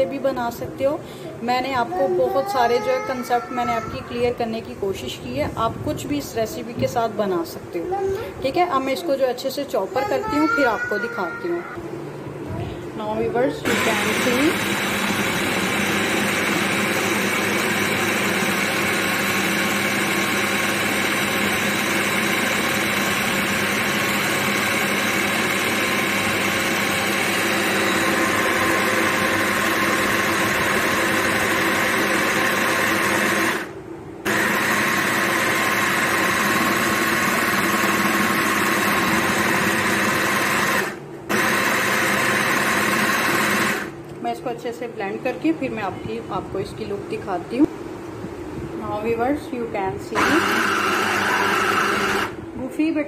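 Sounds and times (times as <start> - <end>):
hand blender motor chopping: 13.7 - 33.7, 34.3 - 43.9, 50.2 - 52.4.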